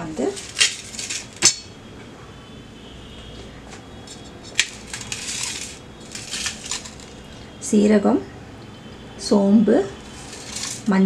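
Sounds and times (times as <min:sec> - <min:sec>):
scraping rustle: 0:00.2 - 0:01.6, 0:03.8 - 0:07.5, 0:10.0 - 0:11.0
spoons clicking on steel plate: 0:04.5 - 0:07.3, 0:10.1 - 0:10.9.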